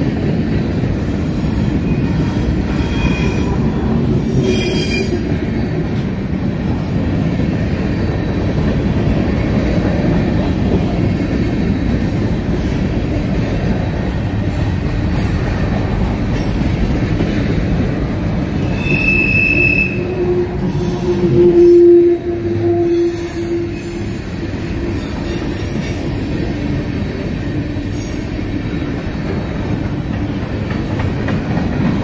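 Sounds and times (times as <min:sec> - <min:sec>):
train wheels rumbling on rails: 0:00.0 - 0:32.0
high wheel squeal: 0:01.8 - 0:05.3, 0:18.6 - 0:26.4.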